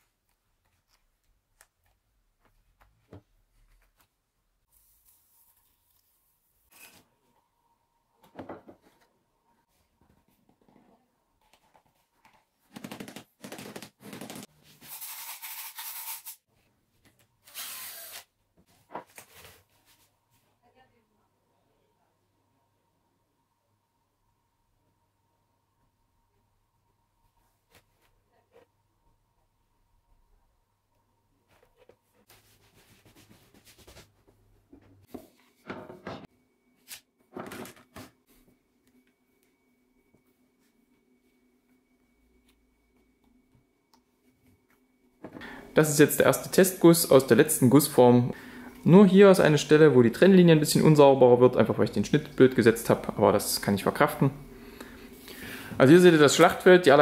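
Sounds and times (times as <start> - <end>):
plastic and rubber rubbing and scraping: 12.7 - 14.5.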